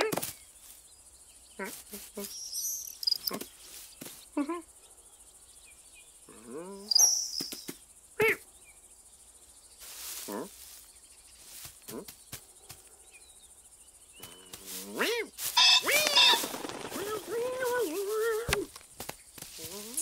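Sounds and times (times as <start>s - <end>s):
faint high chirps: 1.6s - 8.8s, 15.3s - 18.7s
small clicks: 2.9s - 3.4s.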